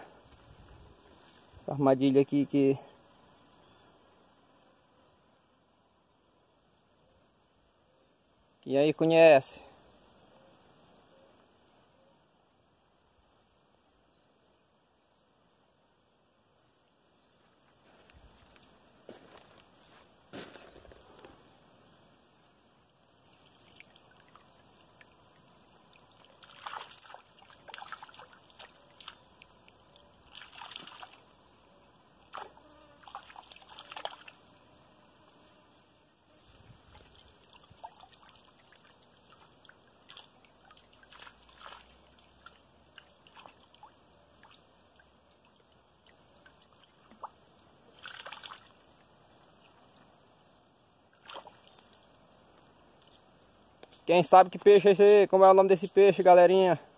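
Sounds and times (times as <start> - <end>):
stream water trickling: 0.0 - 1.8, 17.0 - 35.2, 36.1 - 56.9
water splashes and drips: 23.0 - 34.4, 36.8 - 50.2, 51.0 - 53.2.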